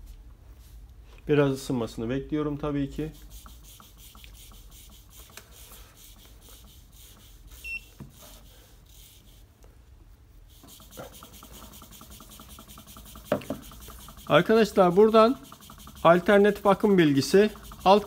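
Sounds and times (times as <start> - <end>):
short high beep: 7.6 - 7.9.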